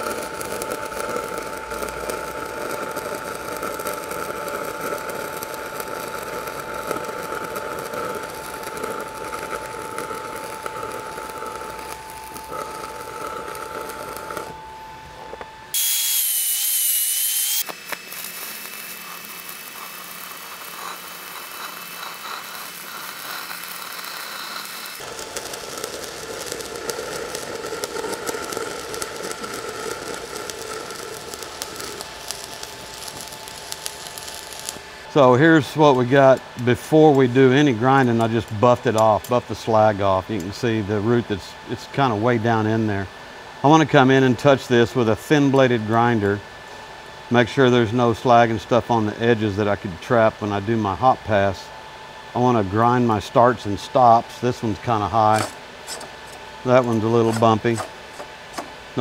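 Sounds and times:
welding arc crackling: 0.0 - 40.8, 52.9 - 59.0
wavering high tone: 8.3 - 15.8.

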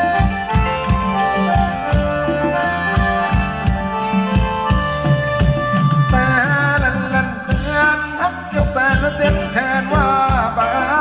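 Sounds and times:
keyboard melody: 0.0 - 11.0
steady drum beat: 0.0 - 11.0
person singing: 6.1 - 11.0.

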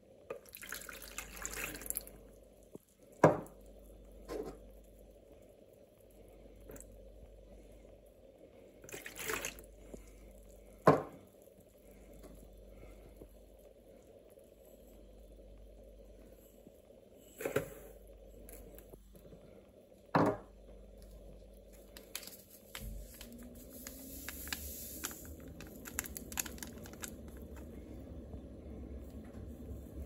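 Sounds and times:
paper sachet torn and crinkling: 21.8 - 27.7.

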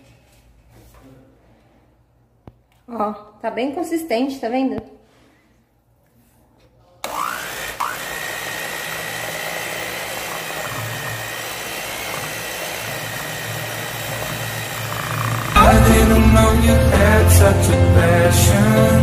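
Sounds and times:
stand mixer motor whining: 7.1 - 15.6.

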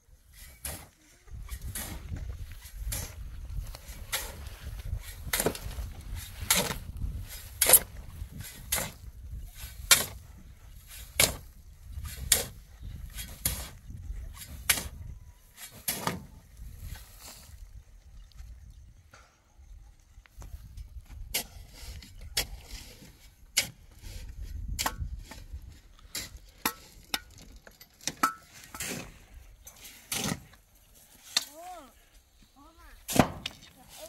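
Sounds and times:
shovel scraping sand on metal: 0.2 - 17.6, 21.3 - 27.2, 28.0 - 31.6.

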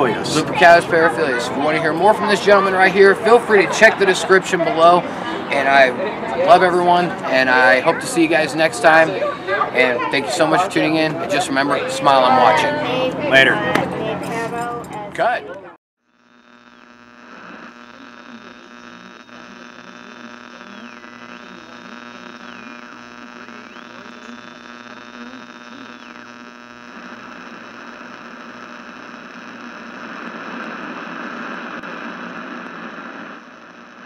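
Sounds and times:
electronic buzzing hum: 16.0 - 34.0.

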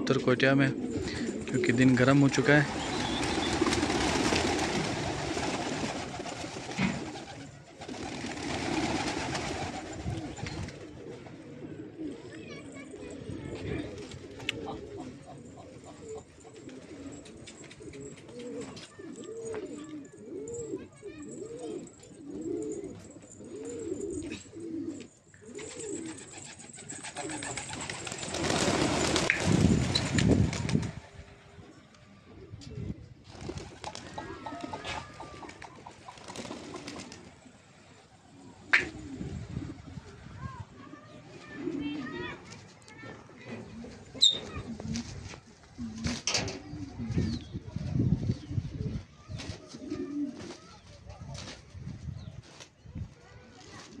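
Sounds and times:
pigeons cooing: 0.0 - 30.0, 31.4 - 42.5, 43.4 - 50.6
pigeon wings flapping: 1.0 - 11.0, 25.5 - 31.1, 33.2 - 37.4, 49.4 - 51.8.

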